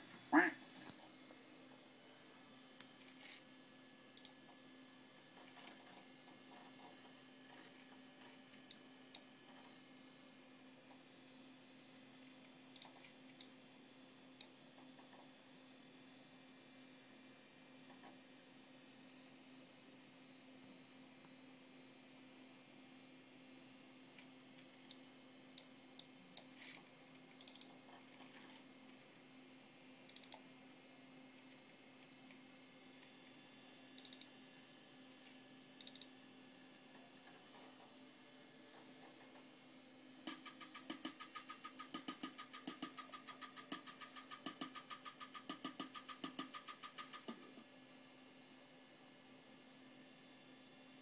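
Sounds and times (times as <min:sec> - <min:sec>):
faint computer hum: 0:00.0 - 0:51.0
soft mouse clicks: 0:04.2 - 0:04.4, 0:12.7 - 0:13.5, 0:27.4 - 0:27.8, 0:30.1 - 0:30.4, 0:34.0 - 0:34.3, 0:35.8 - 0:36.1.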